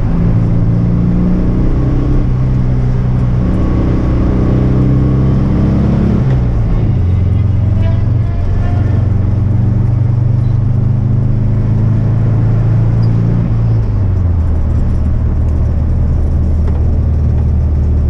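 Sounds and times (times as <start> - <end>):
car engine running hard: 0.0 - 18.0.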